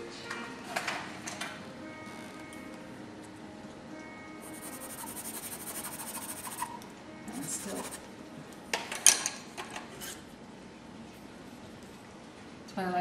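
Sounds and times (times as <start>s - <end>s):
pencil scratching on paper: 4.4s - 6.7s, 7.3s - 8.0s
pencils clicking and clattering: 4.8s - 6.7s, 7.5s - 8.0s.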